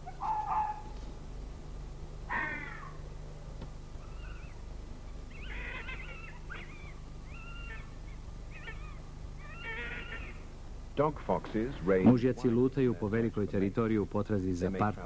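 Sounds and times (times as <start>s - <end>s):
fox calling: 0.0s - 1.0s, 2.3s - 3.0s, 4.0s - 10.6s
steady low hum: 0.0s - 15.0s.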